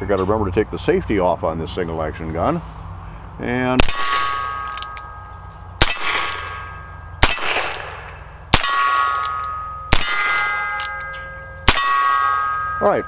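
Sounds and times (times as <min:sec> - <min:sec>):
steel target plate ringing: 0:03.8 - 0:13.0.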